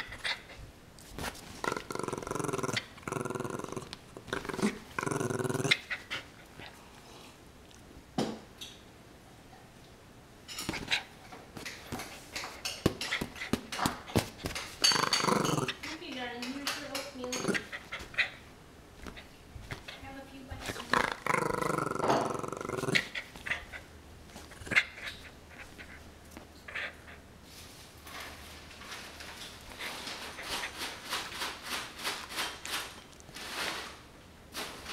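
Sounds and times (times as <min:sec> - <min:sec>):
puppy growling: 0:01.5 - 0:06.8, 0:14.8 - 0:16.0, 0:17.2 - 0:18.4, 0:20.6 - 0:26.0
puppy tussling with rope toy: 0:10.6 - 0:26.9, 0:27.5 - 0:34.9.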